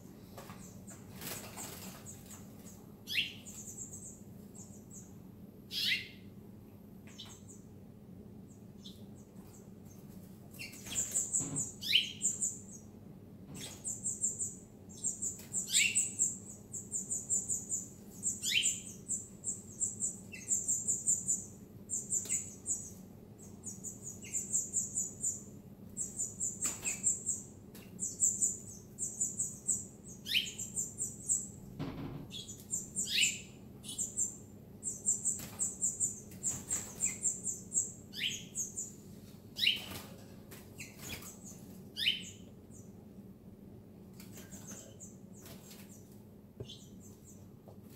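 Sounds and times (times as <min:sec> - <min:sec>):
canaries and finches chirping: 0:10.5 - 0:12.8, 0:13.5 - 0:25.4, 0:26.0 - 0:39.0, 0:39.6 - 0:40.2, 0:40.8 - 0:42.9, 0:44.3 - 0:45.9.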